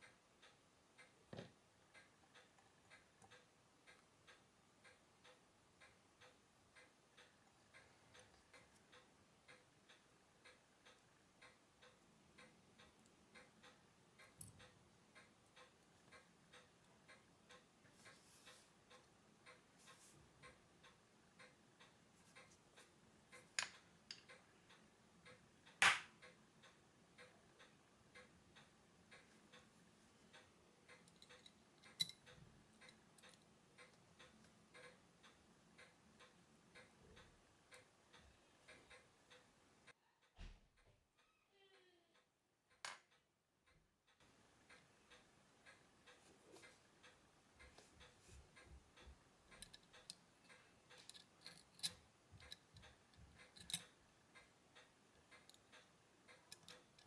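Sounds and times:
clock ticking: 0.0 - 57.0
metal watch parts clicking: 30.3 - 37.9, 49.0 - 57.0.

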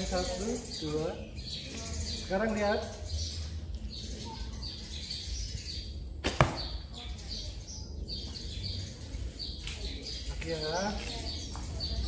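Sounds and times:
birds chirping: 0.0 - 12.0
bowstring snap: 6.2 - 6.8.

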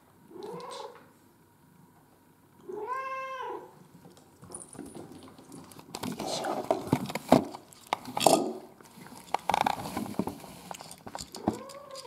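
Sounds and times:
cat meowing: 2.7 - 3.7.

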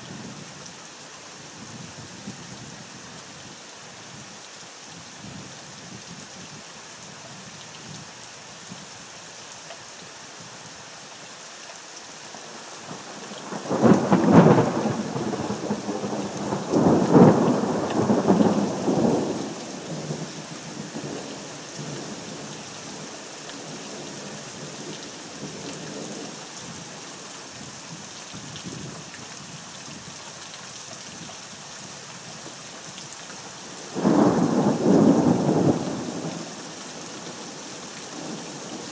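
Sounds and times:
steady rain hissing: 0.0 - 38.9
thunder rumbling: 13.6 - 20.2, 34.0 - 36.5.

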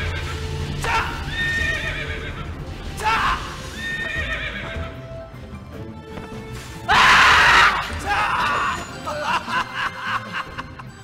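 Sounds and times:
rough scream: 6.9 - 8.8.

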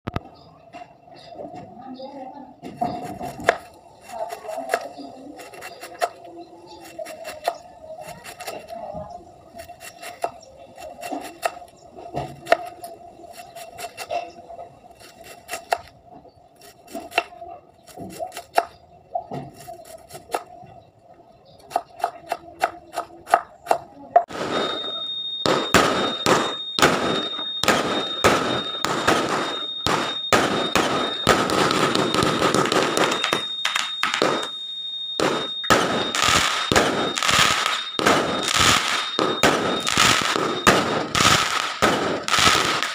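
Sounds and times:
steady high tone: 24.0 - 42.9
fireworks bangs: 24.3 - 42.9.

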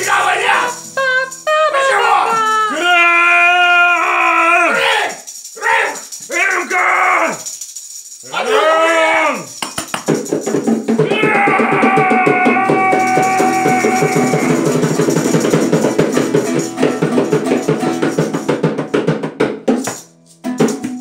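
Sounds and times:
man shouting long note: 0.0 - 0.8, 1.8 - 4.9, 11.1 - 14.9
acoustic guitar strummed fast: 10.1 - 21.0.

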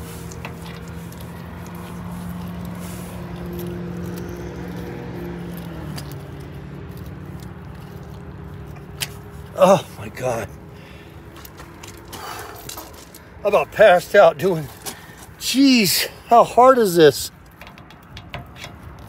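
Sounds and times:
hose clicks and scrapes: 0.0 - 9.5, 17.4 - 19.0
steady mechanical hum: 0.0 - 19.0.

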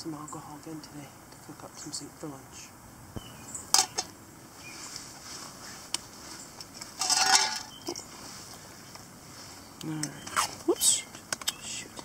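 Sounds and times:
ringing metallic rattle: 7.0 - 7.8.

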